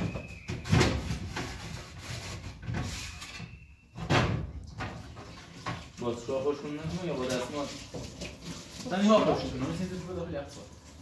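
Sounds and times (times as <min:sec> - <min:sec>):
kitchen doors and drawers banging: 0:00.0 - 0:01.8, 0:03.9 - 0:05.9.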